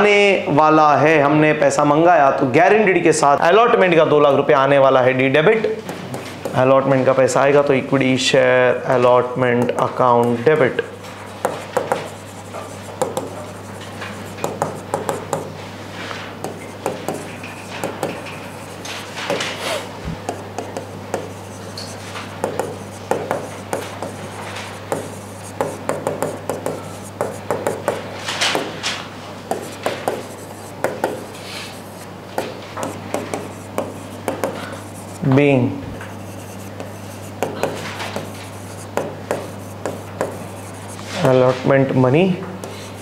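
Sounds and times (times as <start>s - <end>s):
low electrical hum: 0.0s - 43.0s
pen tapping and scratching: 5.8s - 6.6s, 11.3s - 15.6s, 16.4s - 28.8s, 29.5s - 35.4s, 36.0s - 41.1s.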